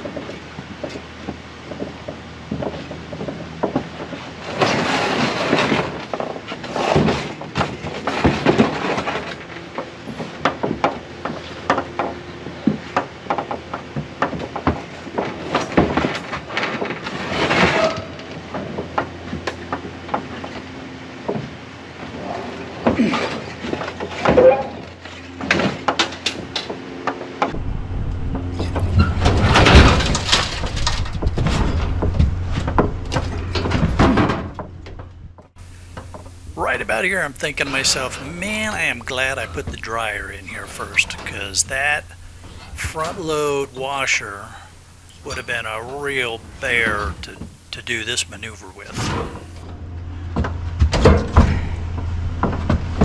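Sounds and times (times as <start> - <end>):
metal scraping: 27.5 - 53.0
metal cabinet clunks and knocks: 27.6 - 35.4, 49.0 - 53.0.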